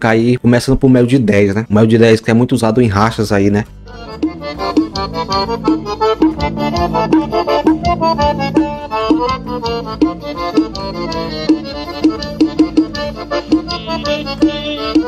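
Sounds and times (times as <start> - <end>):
accordion dance music: 3.8 - 15.0.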